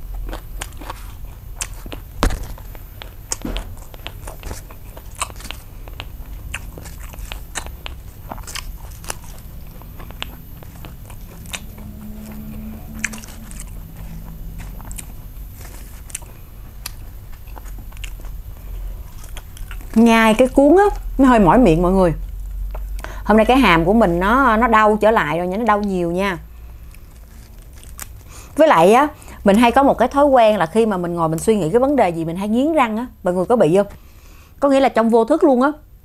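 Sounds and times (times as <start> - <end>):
crunchy chewing: 0.0 - 21.2, 25.6 - 29.4.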